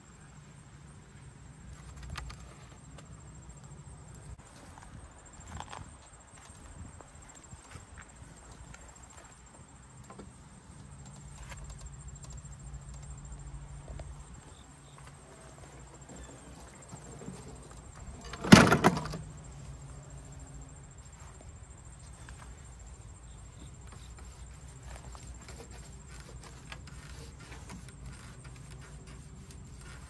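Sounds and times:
faint low hum: 0.0 - 30.0
lawnmower rattling clatter: 15.2 - 19.5, 23.8 - 30.0
handling knocks: 15.7 - 19.5.

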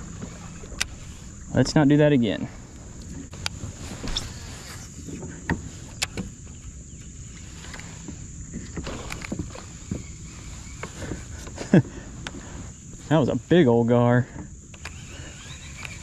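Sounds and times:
low rumble: 0.0 - 5.4
insects buzzing: 0.0 - 16.0
knocks and clicks of fishing gear: 5.1 - 7.1, 7.7 - 10.1.

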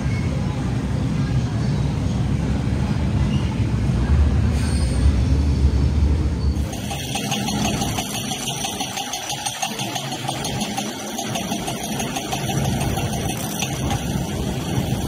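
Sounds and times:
train rumbling: 2.4 - 15.0
wheel squeal: 3.2 - 3.7, 4.5 - 15.0.

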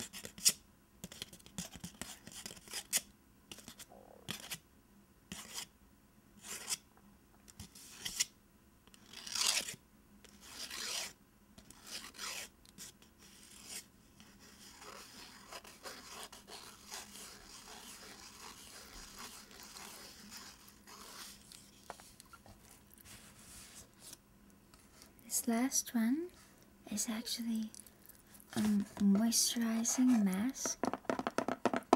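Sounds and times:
fingernails scratching paper wrapper: 9.0 - 24.2.

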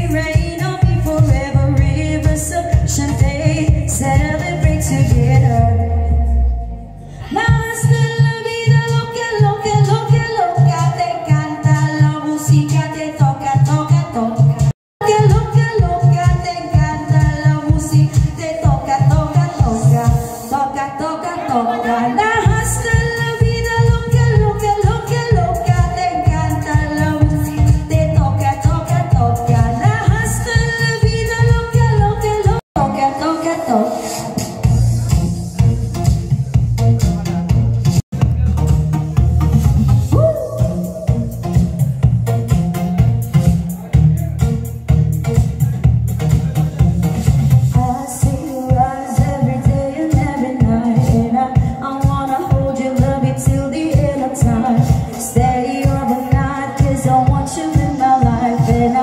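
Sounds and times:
women singing pop music: 0.0 - 6.6, 7.2 - 34.7, 47.7 - 59.0
amplified drum and bass beat: 0.0 - 20.6, 22.4 - 32.9, 33.9 - 59.0.

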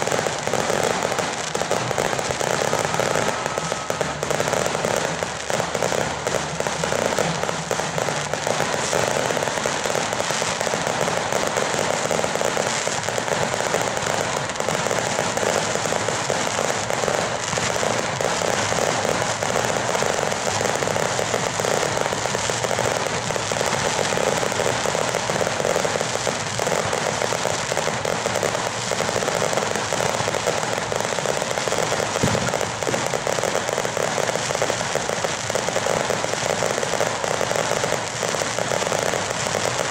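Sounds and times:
firecrackers crackling: 0.0 - 39.9
firework shell booming: 31.8 - 34.0.

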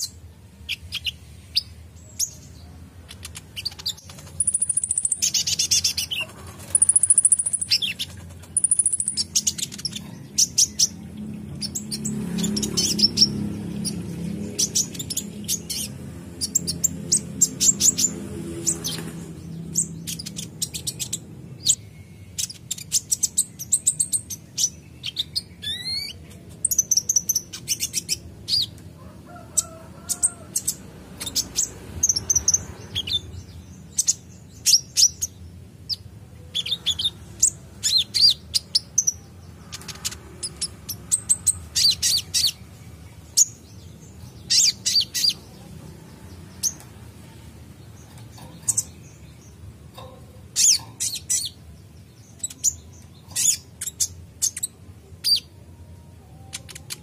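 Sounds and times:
sunbird chirping and twittering: 0.0 - 57.0.

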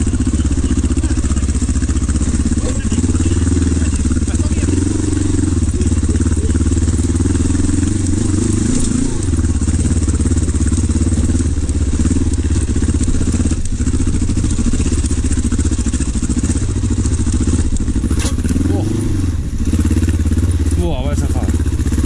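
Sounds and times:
motorcycle engine running: 0.0 - 22.0.

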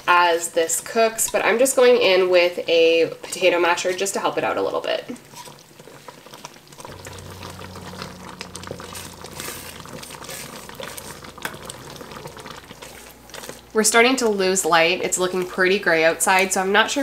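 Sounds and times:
jam bubbling and popping: 5.1 - 14.4
masher and spoon stirring jam: 5.2 - 14.4
low steady hum: 6.7 - 16.1.

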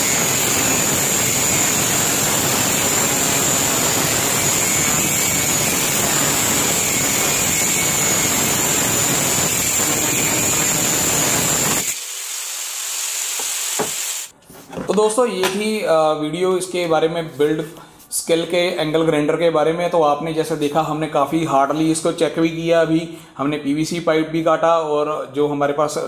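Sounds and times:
angle grinder cutting metal rod: 0.0 - 14.3.

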